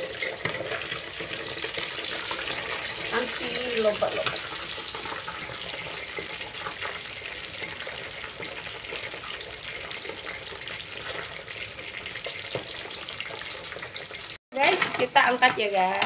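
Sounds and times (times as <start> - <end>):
fish sizzling in hot oil: 0.0 - 16.0.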